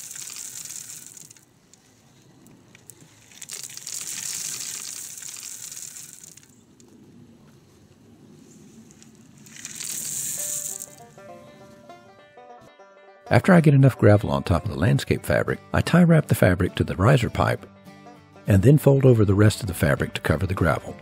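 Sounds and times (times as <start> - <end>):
gravel pouring off shovel: 0.0 - 1.4, 2.9 - 6.6, 9.4 - 11.2
plucked banjo music: 10.4 - 21.0.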